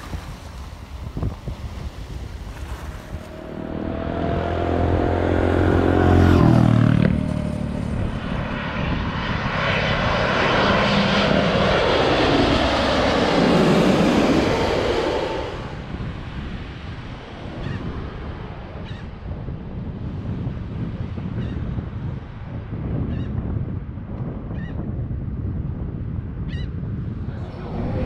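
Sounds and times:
jet airliner rushing overhead: 0:00.0 - 0:28.0
jet engine tone sliding down: 0:03.1 - 0:16.0.

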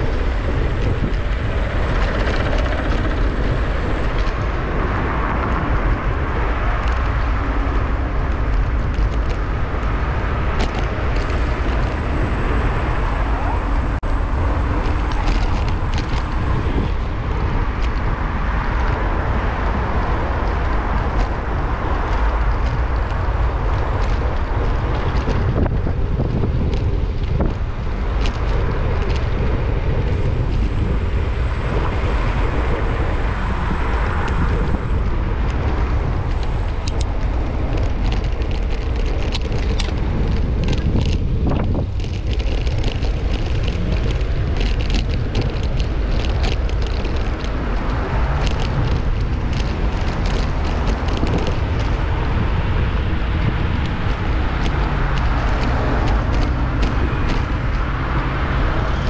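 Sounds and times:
wind buffeting microphone: 0:00.0 - 0:59.0.

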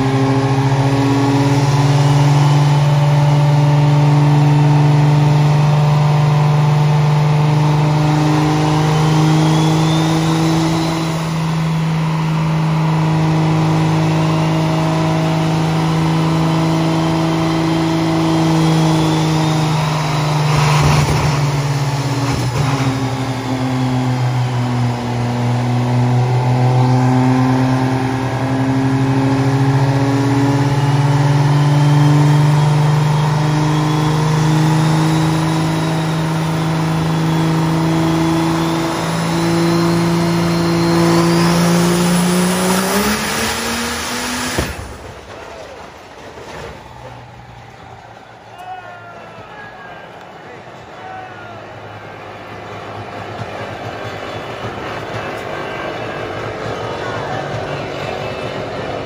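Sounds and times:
diesel engine droning: 0:00.0 - 0:59.0
turbo whistle: 0:08.6 - 0:12.8
sharp crack: 0:44.4 - 0:47.3.

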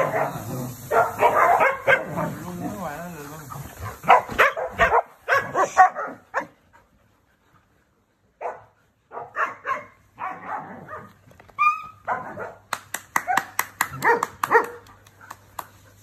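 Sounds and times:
dogs barking: 0:00.0 - 0:02.6, 0:03.8 - 0:06.6, 0:08.4 - 0:14.8.

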